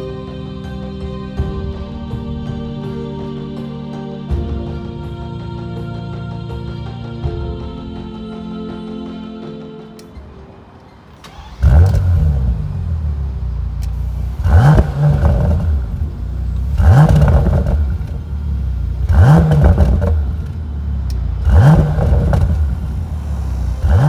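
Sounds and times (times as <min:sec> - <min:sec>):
car engine idling and revving: 0:11.1 - 0:24.0.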